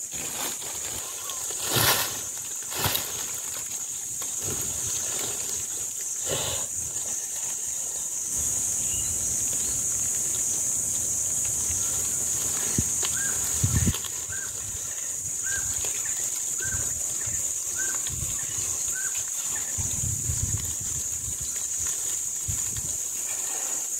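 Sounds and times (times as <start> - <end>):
high-pitched insect drone: 0.5 - 23.9
bird calling: 0.8 - 1.6, 11.7 - 19.9.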